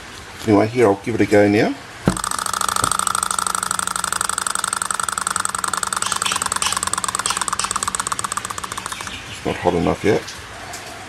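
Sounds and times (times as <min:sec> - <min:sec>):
small engine linkage clattering: 0:02.1 - 0:09.9.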